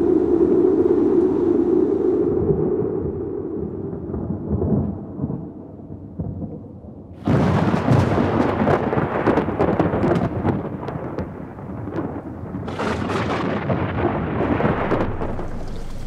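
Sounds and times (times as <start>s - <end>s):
rolling thunder rumble: 2.4s - 16.0s
crackling thunderclap: 4.0s - 16.0s.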